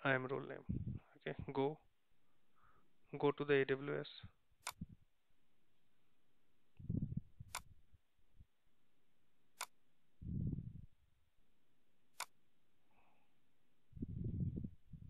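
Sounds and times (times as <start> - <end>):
computer mouse clicks: 4.6 - 5.0, 7.4 - 7.8, 9.6 - 9.8, 12.2 - 12.4.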